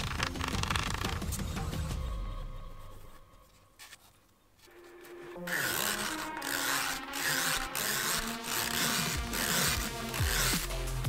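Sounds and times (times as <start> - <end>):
metal blade scraping matchbox: 3.8 - 11.0.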